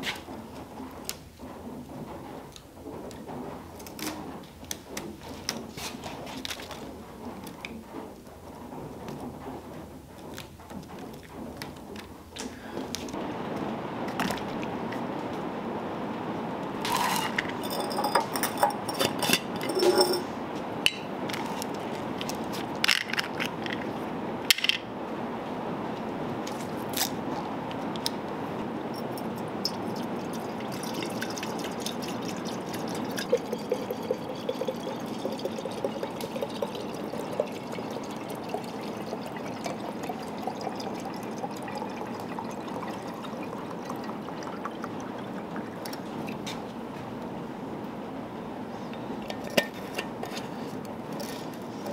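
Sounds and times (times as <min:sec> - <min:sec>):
oil pouring into glass jar: 0:16.8 - 0:20.3, 0:29.0 - 0:46.4.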